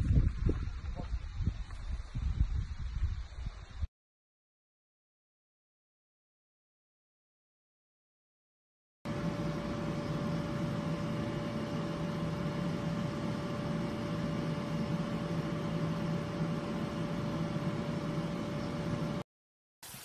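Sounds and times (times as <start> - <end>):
steady machine hum: 9.1 - 19.2.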